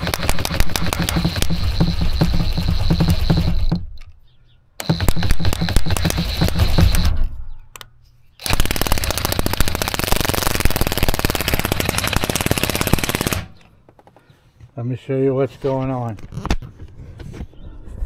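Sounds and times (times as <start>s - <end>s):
cordless drill rapid clicking: 0.0s - 4.1s, 4.8s - 7.2s, 8.4s - 13.5s.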